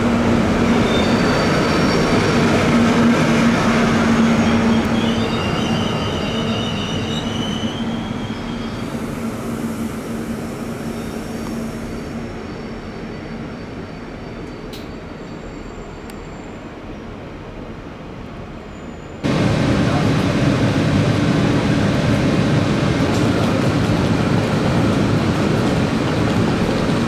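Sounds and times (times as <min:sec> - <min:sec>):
passenger train rolling: 0:00.0 - 0:27.0
train wheels squealing: 0:00.6 - 0:16.8, 0:18.6 - 0:19.2.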